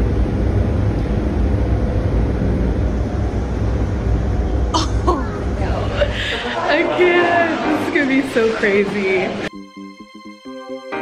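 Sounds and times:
loud rush of air: 0.0 - 8.7.

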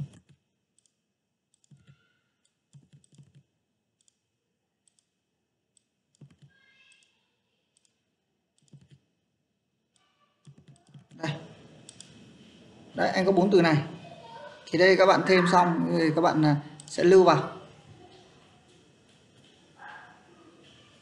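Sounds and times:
computer mouse clicks: 0.0 - 5.2, 5.8 - 7.1, 7.8 - 8.0, 8.6 - 9.1, 9.9 - 11.2, 11.8 - 12.2.

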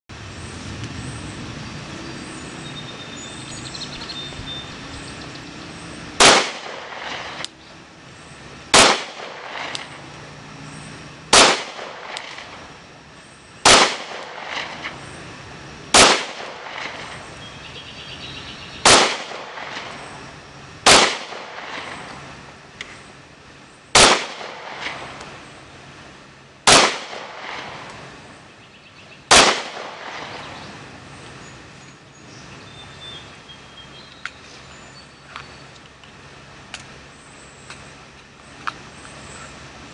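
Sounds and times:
pistol shots with echo: 6.2 - 7.4, 8.8 - 10.0, 11.3 - 12.6, 13.6 - 14.9, 15.9 - 17.1, 18.8 - 20.0, 20.8 - 22.0, 24.0 - 25.0, 26.7 - 27.9, 29.3 - 30.6.

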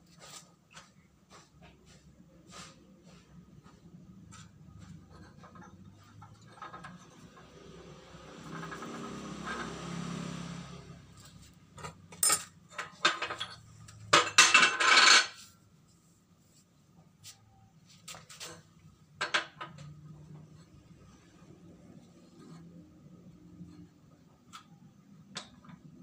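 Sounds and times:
metal parts clattering on steel: 5.2 - 7.5, 11.8 - 15.4.

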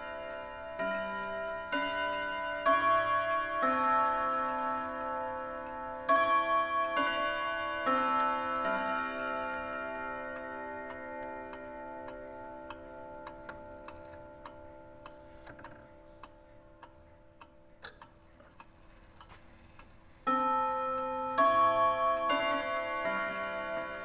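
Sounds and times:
clock gongs striking: 0.0 - 16.5, 19.6 - 24.0
pendulum clock ticking: 0.0 - 24.0.

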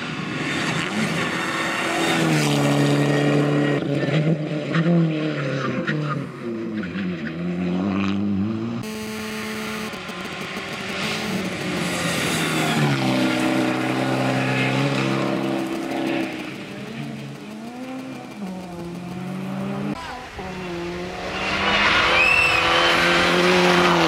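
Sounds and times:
rally car engine at full throttle: 0.0 - 24.0
car passing by: 18.7 - 24.0.

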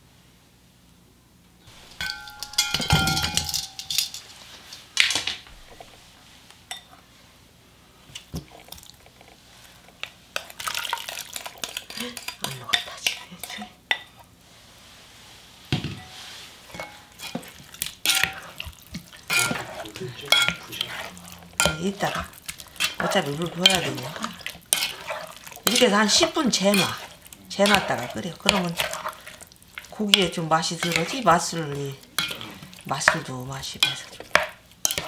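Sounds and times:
spoon stirring in pot: 1.7 - 4.8, 8.1 - 14.3, 16.0 - 35.0
spoon scraping glass bowl: 16.0 - 35.0.

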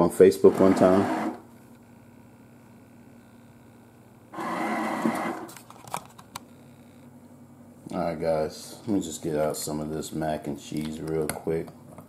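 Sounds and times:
paper towel dispenser motor: 0.4 - 1.4, 4.4 - 5.6.

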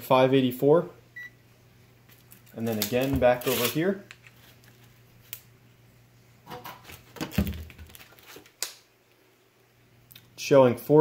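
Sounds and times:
faint hum: 0.0 - 7.1.

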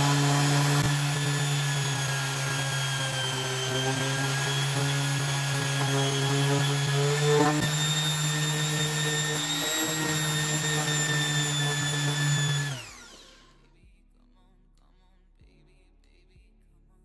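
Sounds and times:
orbital sander on steel blade: 0.0 - 13.5.

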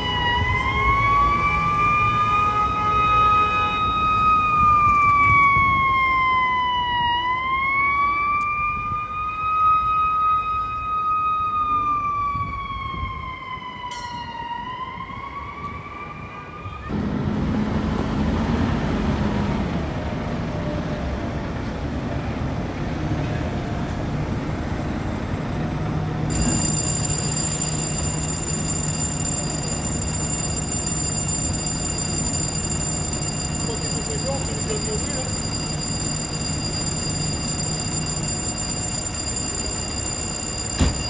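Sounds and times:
fire engine siren wailing: 0.0 - 17.0, 26.3 - 41.0
fire truck engine rumbling: 0.0 - 41.0.

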